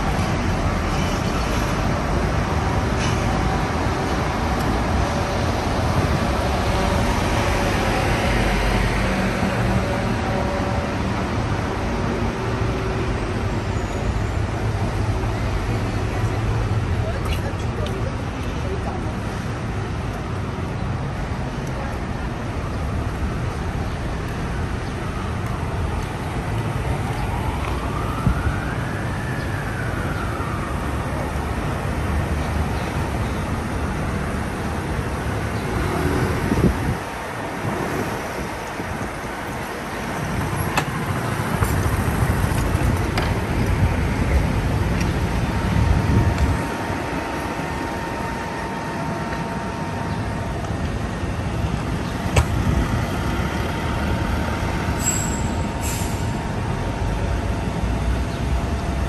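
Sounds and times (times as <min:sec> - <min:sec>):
city street traffic: 0:00.0 - 0:59.0
siren: 0:25.0 - 0:34.0, 0:43.2 - 0:52.0.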